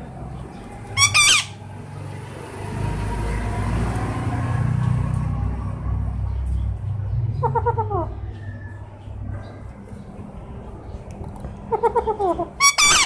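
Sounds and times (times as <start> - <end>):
parakeet squawk: 1.0 - 1.6, 11.7 - 13.0.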